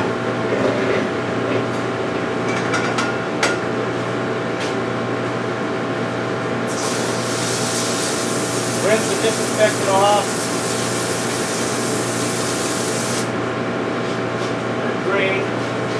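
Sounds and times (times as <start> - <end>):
hose spraying water: 6.7 - 13.3
electric cement mixer humming: 6.7 - 13.4.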